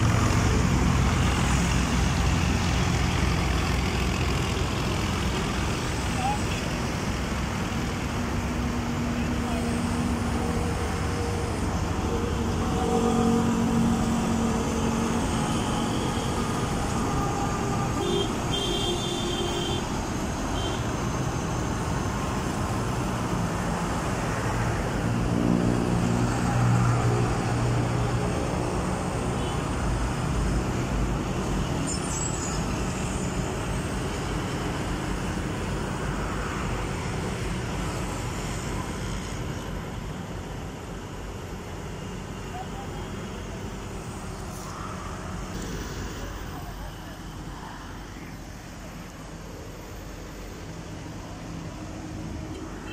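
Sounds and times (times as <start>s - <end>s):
excavator diesel engine running: 0.0s - 52.9s
road traffic: 0.0s - 52.9s.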